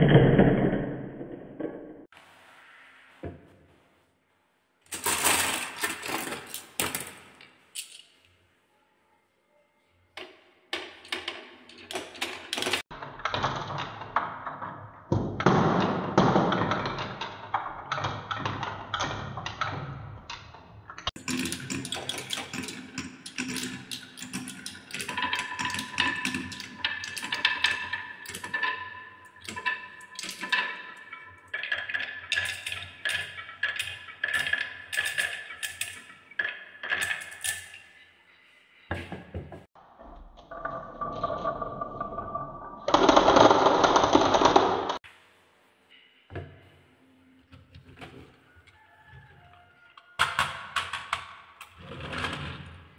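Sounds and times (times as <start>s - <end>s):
marbles rattling down wooden run: 21.2s - 37.8s, 40.5s - 45.0s.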